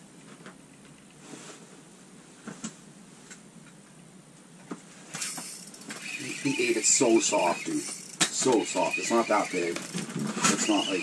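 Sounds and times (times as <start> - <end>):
fishing gear clicks and rustles: 5.2 - 11.0.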